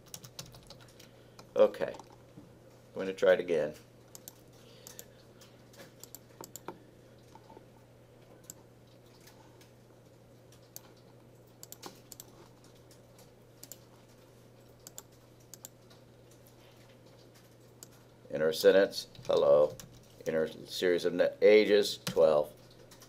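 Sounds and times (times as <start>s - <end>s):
keyboard and mouse clicks: 0.0s - 2.2s, 4.1s - 7.6s, 10.5s - 13.0s, 13.6s - 13.9s, 14.8s - 18.0s
low electrical hum: 0.0s - 23.0s.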